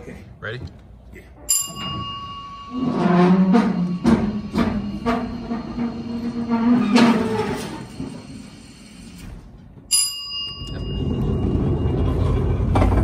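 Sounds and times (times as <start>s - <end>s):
low rolling rumble: 10.8s - 13.0s.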